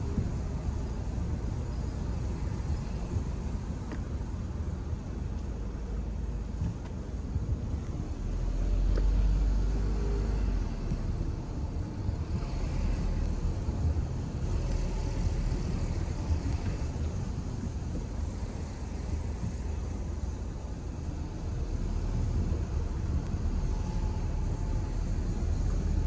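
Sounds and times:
car tyre and engine rumble: 0.0s - 26.0s.

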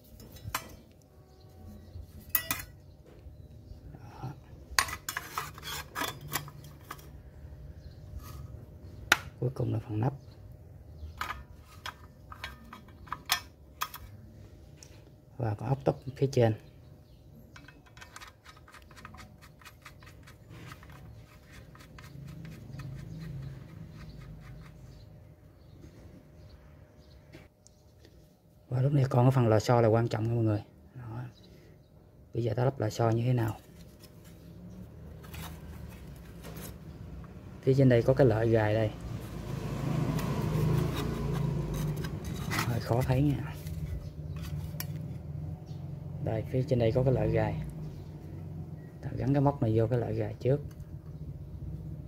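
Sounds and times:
saw blade clinking on metal: 2.3s - 2.8s.

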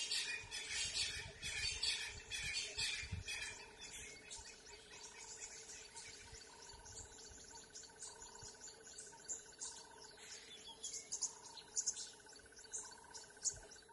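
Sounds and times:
birds chirping: 0.0s - 13.9s
pulsing insect trill: 3.6s - 13.9s.

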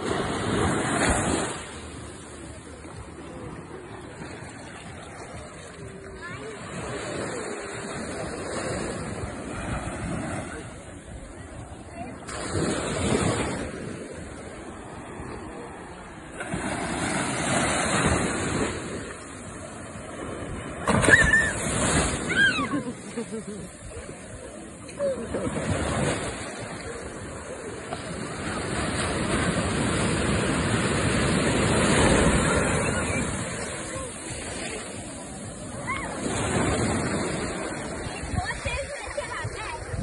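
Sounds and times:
small waves washing on sand: 0.0s - 40.0s
wave breaking with a splash: 12.2s - 13.9s, 20.1s - 23.6s
child's high-pitched cry: 22.3s - 22.8s.

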